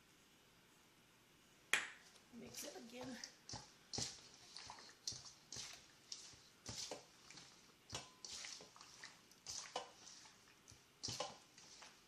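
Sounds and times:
hands squishing wet chicken: 0:02.5 - 0:12.0.

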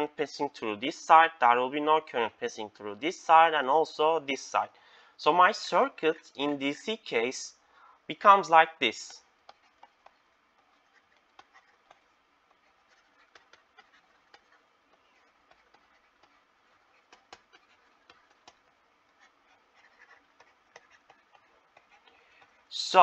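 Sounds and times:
stylus tapping on tablet: 0:09.4 - 0:22.6.

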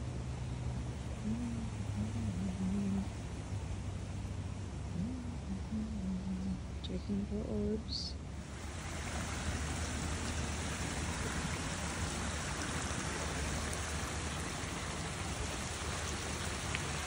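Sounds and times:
running water rushing: 0:08.2 - 0:17.0.

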